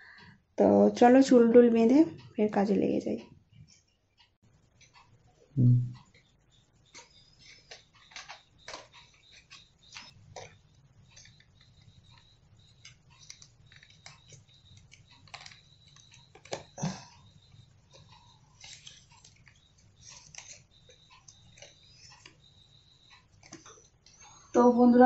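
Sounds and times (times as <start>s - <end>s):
pens and boxes clicking: 7.0s - 24.2s.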